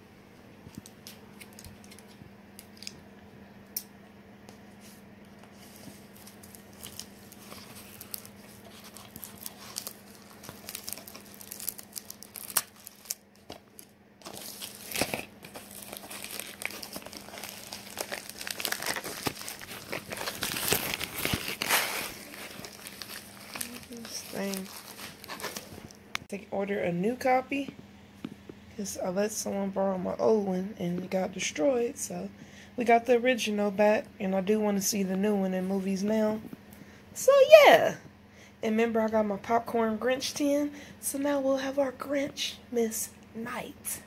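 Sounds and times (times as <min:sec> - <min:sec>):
plastic packaging crinkling: 0:05.5 - 0:26.2.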